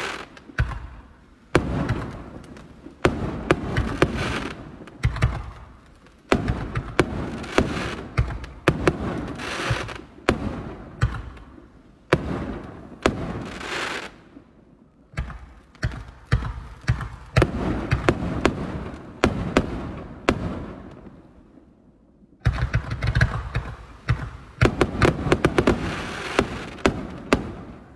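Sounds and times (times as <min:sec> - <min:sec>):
firework trailing hiss: 0:00.0 - 0:01.0, 0:23.8 - 0:27.2
firework shots and bursts: 0:00.0 - 0:21.7, 0:22.3 - 0:27.9.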